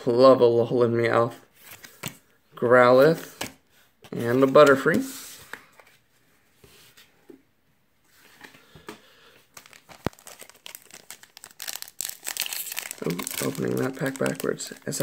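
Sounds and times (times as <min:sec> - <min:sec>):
foil wrapper crinkling: 0:09.5 - 0:15.0
foil pack tearing open: 0:09.6 - 0:15.0.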